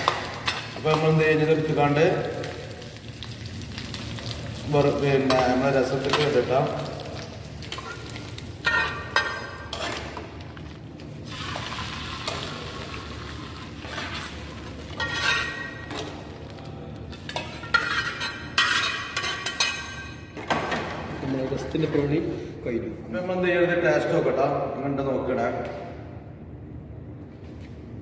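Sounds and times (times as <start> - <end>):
hot oil sizzling: 0.0 - 16.6.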